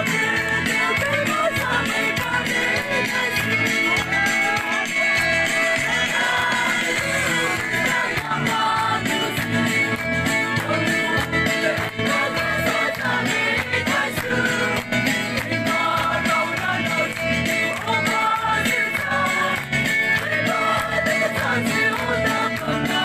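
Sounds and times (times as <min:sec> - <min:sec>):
person singing a song: 0:00.0 - 0:14.8
band with guitar and beat: 0:00.0 - 0:23.0.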